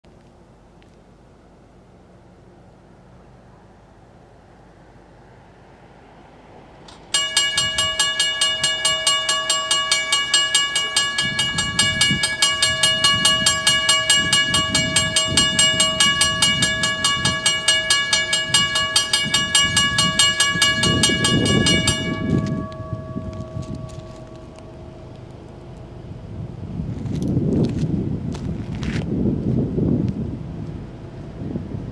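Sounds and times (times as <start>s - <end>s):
railroad crossing bell ringing: 6.8s - 26.3s.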